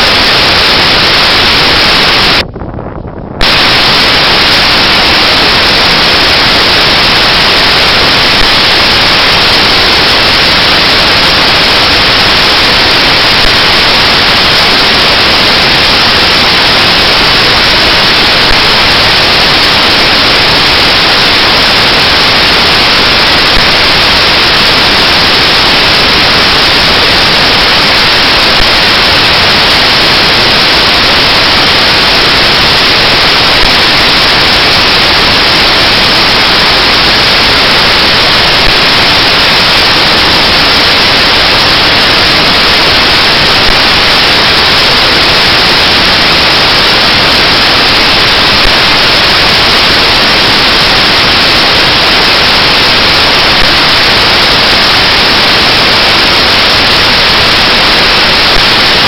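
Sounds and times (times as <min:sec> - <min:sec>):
static hiss: 0:00.0 - 0:59.0.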